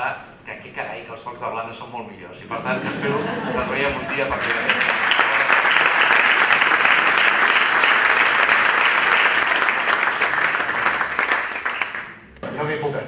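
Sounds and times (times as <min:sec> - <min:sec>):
audience applauding: 0:03.5 - 0:12.2.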